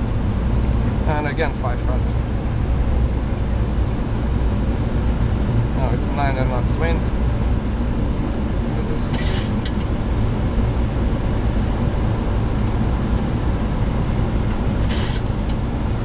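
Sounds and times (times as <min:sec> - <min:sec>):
cockpit airflow and engine rumble: 0:00.0 - 0:16.0.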